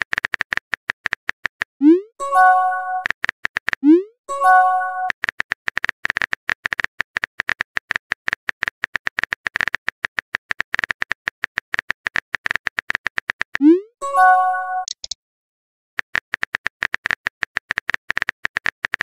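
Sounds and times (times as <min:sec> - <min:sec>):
phone keyboard typing clicks: 0:14.8 - 0:15.2.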